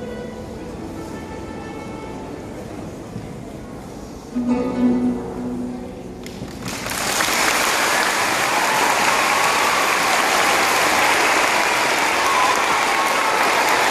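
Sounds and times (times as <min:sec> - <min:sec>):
audience applause: 0:06.2 - 0:13.9.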